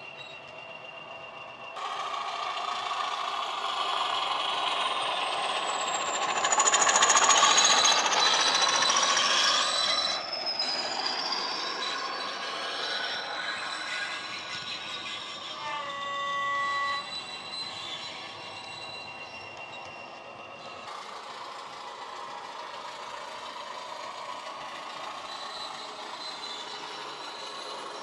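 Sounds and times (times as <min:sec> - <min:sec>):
model locomotive engine sound: 0:00.0 - 0:28.0
high whistle falling in pitch: 0:05.6 - 0:20.9.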